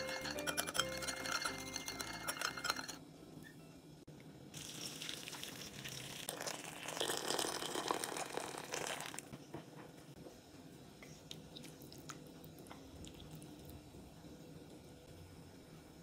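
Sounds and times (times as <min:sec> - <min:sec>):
water pouring into steel bowl: 0:04.6 - 0:09.2.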